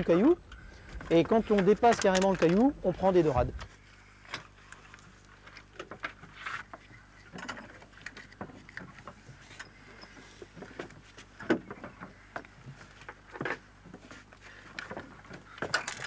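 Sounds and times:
fish being handled: 3.7s - 16.0s.

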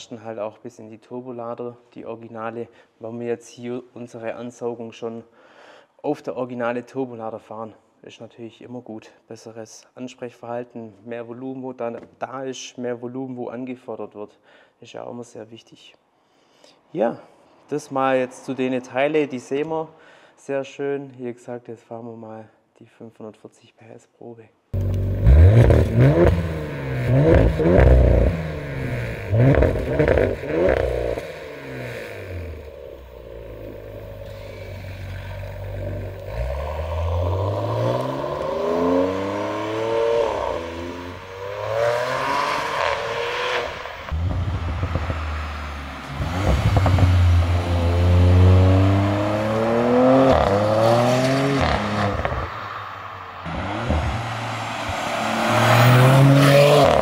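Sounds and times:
car engine accelerating hard: 24.8s - 52.5s, 53.5s - 57.0s.

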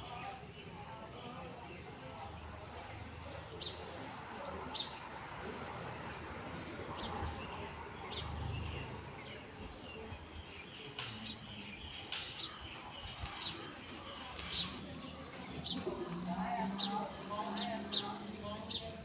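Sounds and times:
small birds chirping: 0.0s - 5.1s, 6.9s - 19.0s.

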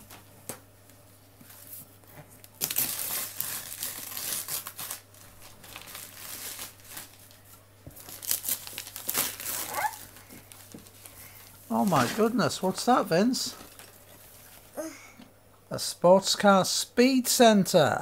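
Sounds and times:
wrapping paper ripping and crinkling: 1.5s - 14.6s.

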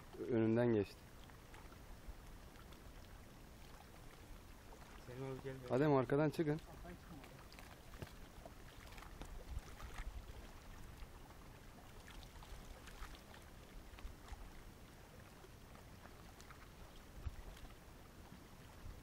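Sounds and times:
water lapping: 0.0s - 19.0s
wind rumble on microphone: 7.9s - 11.5s, 16.8s - 19.0s.

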